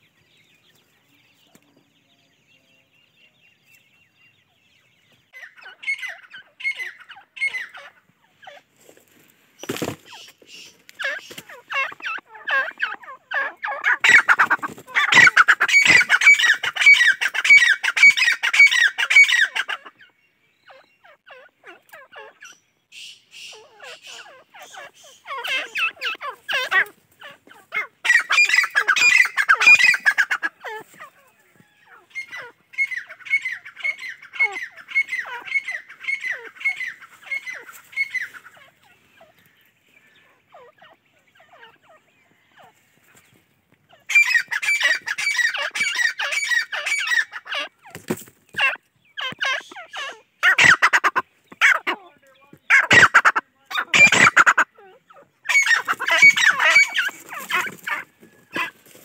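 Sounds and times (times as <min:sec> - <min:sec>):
francolin shrill calls: 0:20.6 - 0:30.8, 0:52.7 - 0:58.7.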